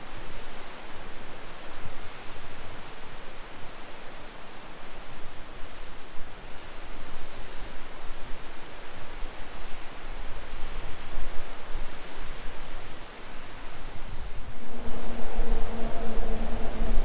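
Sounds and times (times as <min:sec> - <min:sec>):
wind buffeting microphone: 0:14.0 - 0:17.0
waterfall rushing: 0:14.4 - 0:17.0.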